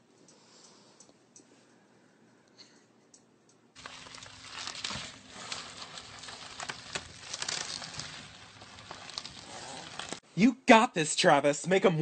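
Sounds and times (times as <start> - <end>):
plastic mesh rustling: 3.8 - 10.2.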